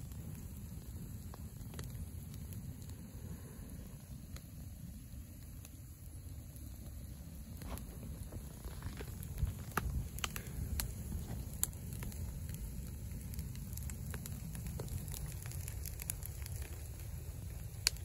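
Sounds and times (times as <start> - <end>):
campfire crackling and popping: 0.0 - 18.0.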